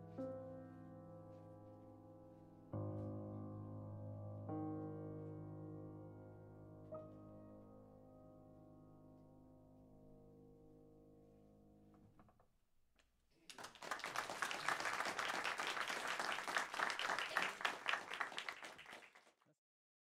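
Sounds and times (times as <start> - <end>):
audience applauding: 13.4 - 19.4.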